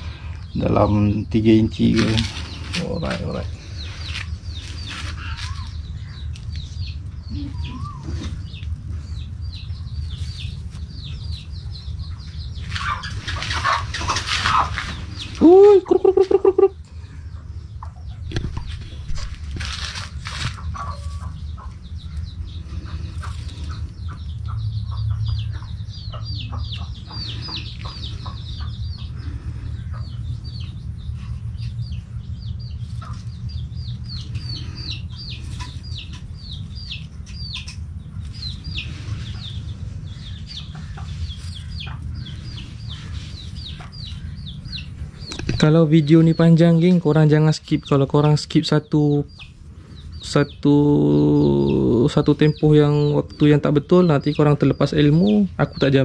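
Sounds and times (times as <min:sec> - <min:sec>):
low hum: 0:00.0 - 0:55.0
chickens clucking: 0:00.0 - 0:56.0
high falling chick peeps: 0:01.8 - 0:19.3.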